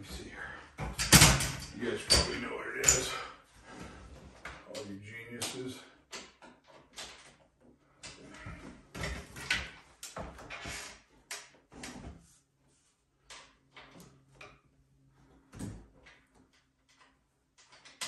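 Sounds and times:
cabinet knocking and rattling: 0.8 - 2.4.

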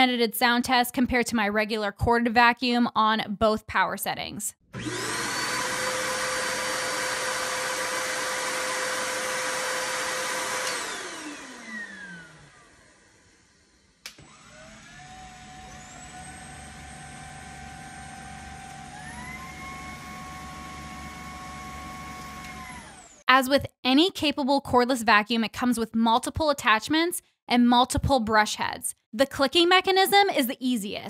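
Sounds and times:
cordless stick vacuum whine: 4.7 - 23.2
corded vacuum cleaner whine: 4.8 - 23.2.

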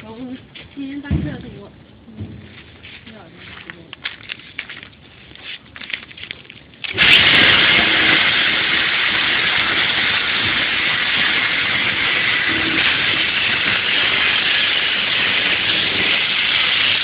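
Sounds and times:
thresher rushing noise: 6.9 - 17.0.

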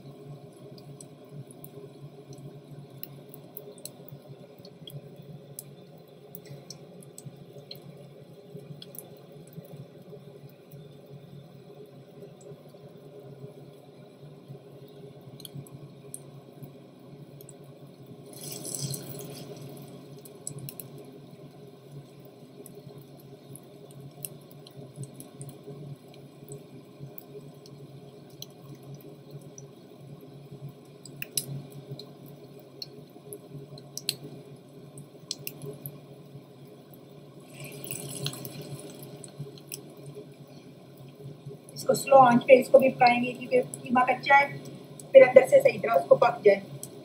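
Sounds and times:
small pops of frying oil: 0.1 - 11.1, 14.8 - 41.8, 46.6 - 47.0
meat sizzling in oil: 17.4 - 41.2.

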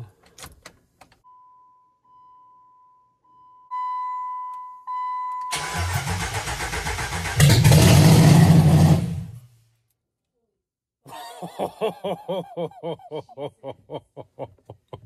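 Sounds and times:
electronic dash chime beeping: 1.2 - 5.6
starter cranking engine: 5.5 - 8.5.

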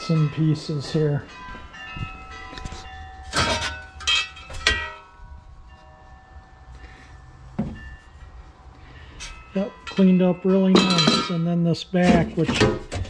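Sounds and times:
metal parts clanking: 2.4 - 5.1, 9.2 - 13.0.

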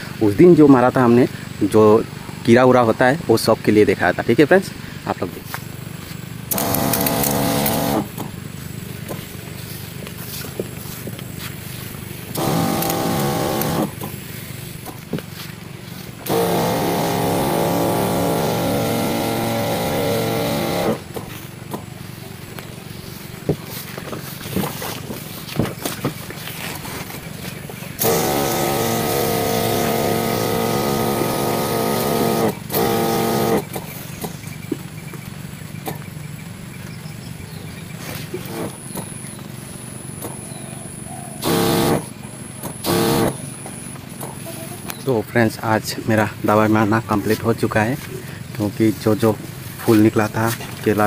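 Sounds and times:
crop sprayer motor hum: 5.1 - 36.0, 38.1 - 40.5, 41.4 - 45.1.

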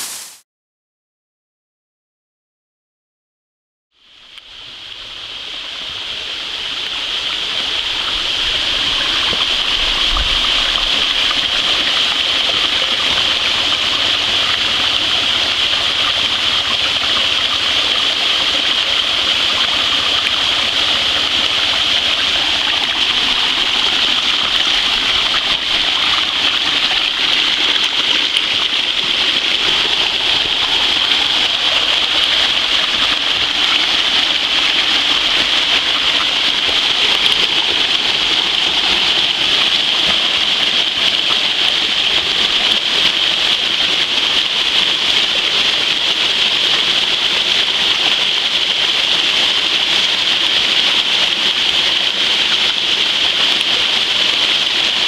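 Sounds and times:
creek splashing down rock ledges: 4.5 - 55.0.

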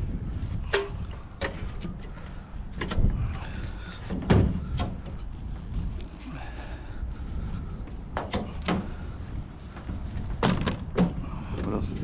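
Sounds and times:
heavy thumps and clunks: 0.6 - 5.3, 7.8 - 12.0.

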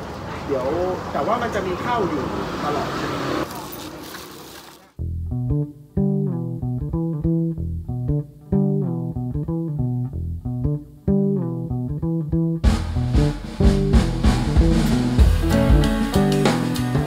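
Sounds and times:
plucked string music with bass: 5.0 - 17.0.

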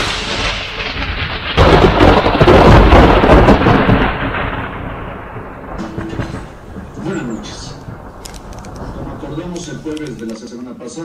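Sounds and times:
thunder crack and rumble: 0.0 - 10.1.

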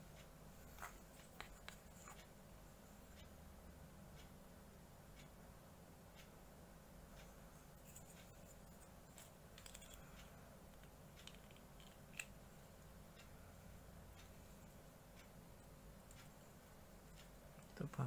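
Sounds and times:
plastic parts clicking and snipping: 9.1 - 10.0, 10.7 - 12.4.

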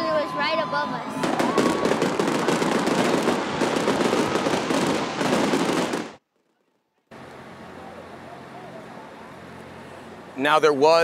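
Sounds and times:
fireworks crackling: 1.1 - 6.2.

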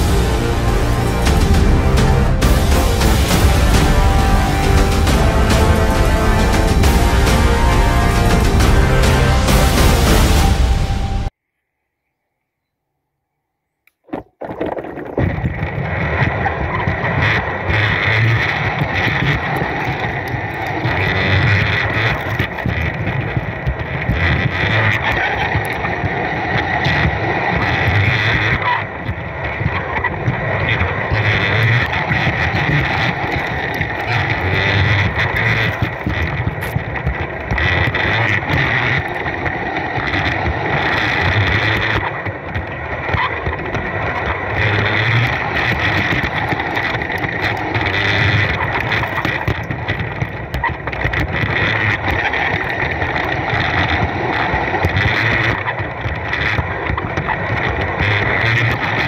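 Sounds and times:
wheels clicking on rails: 14.7 - 59.0
electric motor and gears whining: 30.1 - 59.0.

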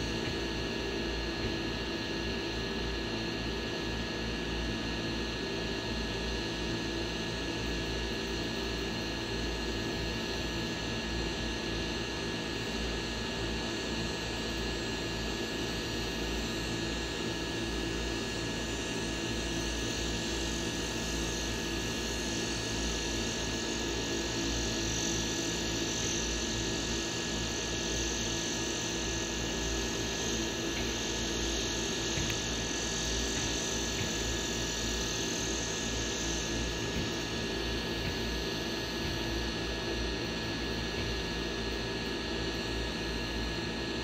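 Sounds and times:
drone motors humming: 0.0 - 2.0, 26.6 - 41.3.

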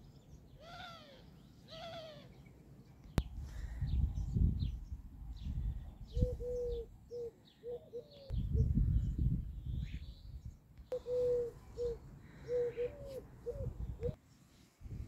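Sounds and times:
small birds chirping: 0.0 - 14.6
dove cooing: 0.6 - 2.3, 6.1 - 8.3, 10.9 - 14.2
wind rumble on microphone: 3.2 - 7.0, 8.3 - 10.6, 13.0 - 14.2, 14.8 - 15.0.

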